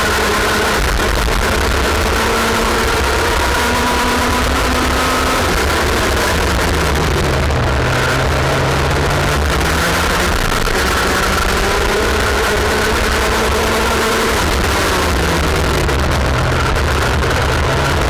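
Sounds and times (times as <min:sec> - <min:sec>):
kart engine revving: 0:00.0 - 0:18.0
other kart engines: 0:00.0 - 0:18.0.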